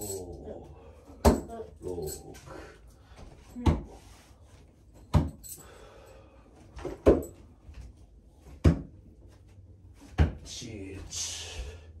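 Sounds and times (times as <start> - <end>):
metal spikes clinking: 0.0 - 0.4.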